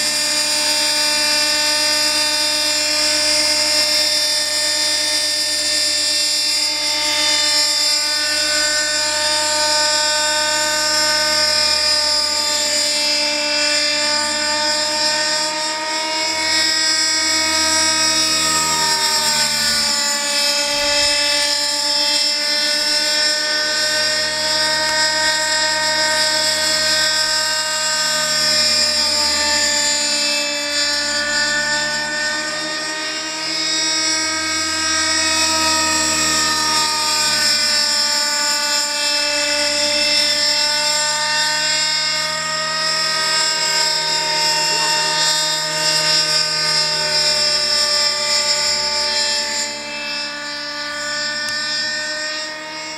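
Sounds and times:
rc helicopter engine whine: 0.0 - 52.9.

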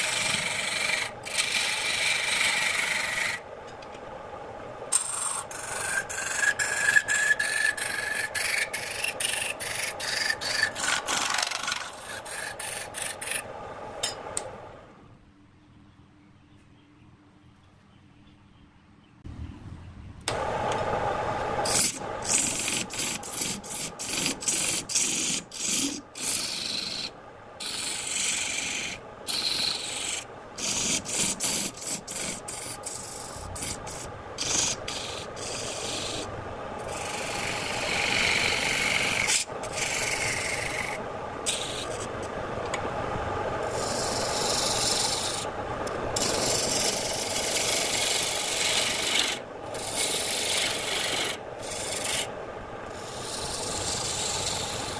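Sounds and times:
lathe tool cutting wood: 0.0 - 3.4, 21.4 - 36.2, 36.8 - 42.0, 43.6 - 45.5, 46.2 - 52.3, 52.9 - 54.9.

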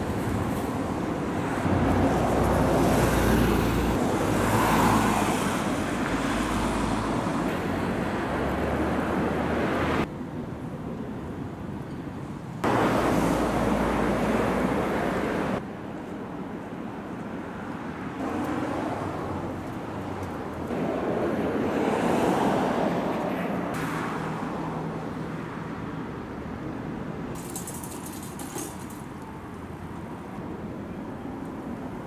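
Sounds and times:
cars passing on street: 0.0 - 32.0.

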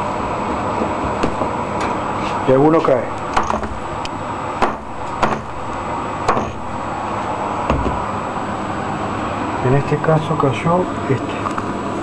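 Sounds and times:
sharp knocks on circuit board: 3.3 - 3.8, 4.6 - 5.6, 6.3 - 6.6.

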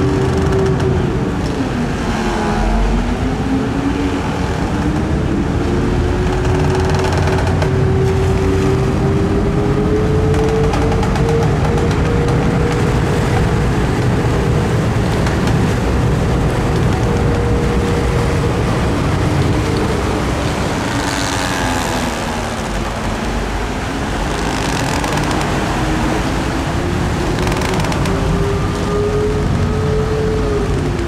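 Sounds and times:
heavy low rumble: 0.0 - 31.0.

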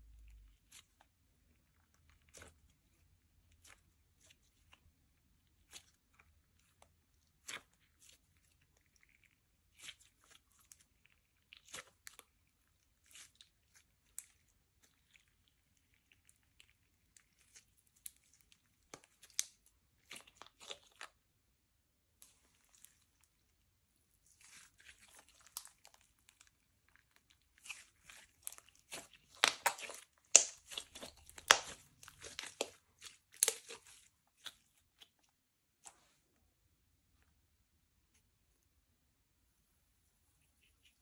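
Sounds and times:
slime squished by hand: 0.5 - 21.2, 24.2 - 35.9
sticky pops and crackles: 28.9 - 32.8.

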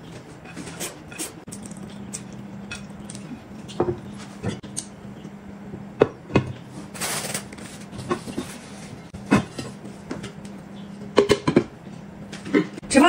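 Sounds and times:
dish cover and plates clattering: 11.2 - 11.7.

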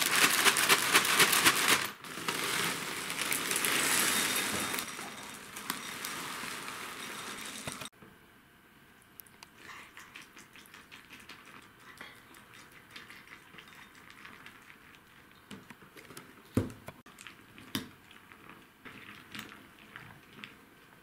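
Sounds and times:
snack packaging crinkling: 0.0 - 7.9.

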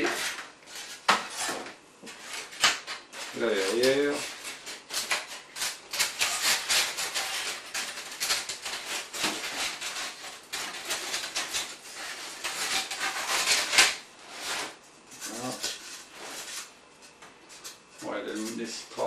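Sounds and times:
foam rubbing and scraping: 0.0 - 16.8.

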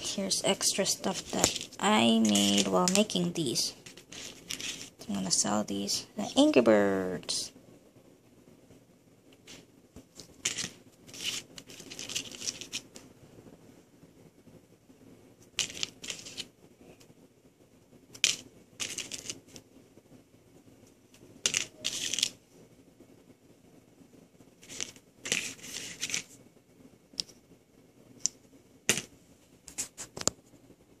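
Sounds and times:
resin charms clicking and scraping: 0.0 - 6.5, 9.4 - 13.1, 15.4 - 16.5, 18.1 - 19.6, 21.4 - 22.4, 24.6 - 26.4.

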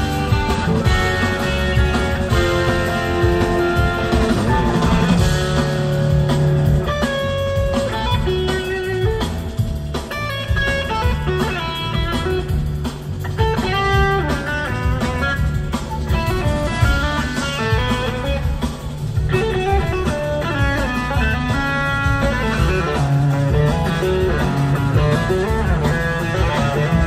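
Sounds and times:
blues rock band playing: 0.0 - 27.0
electric guitar lead: 0.0 - 27.0.

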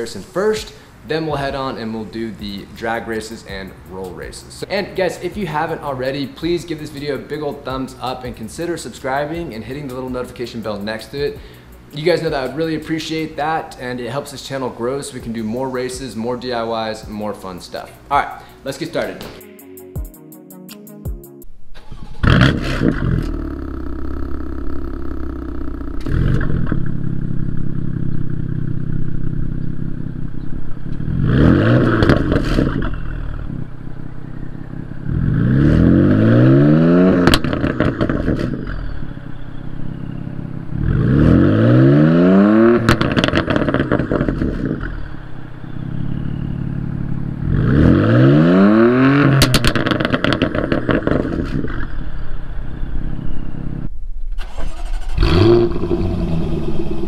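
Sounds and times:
second car engine blipping: 21.8 - 53.8
car engine revving: 21.8 - 57.0
exhaust pops and crackles: 22.2 - 30.1, 30.7 - 33.7, 37.0 - 38.8, 42.5 - 45.0, 48.9 - 52.0.

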